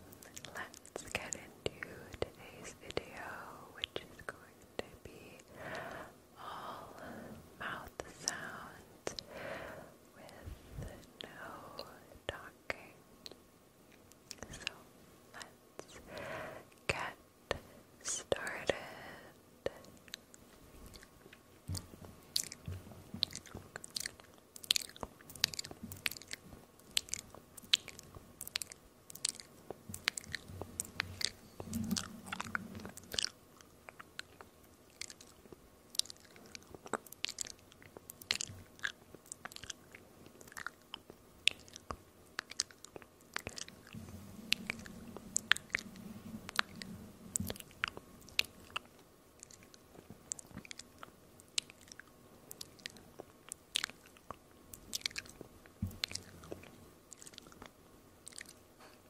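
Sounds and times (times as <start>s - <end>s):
wet mouth clicks and pops: 21.7s - 58.6s
low sound: 30.4s - 33.3s, 43.4s - 48.7s.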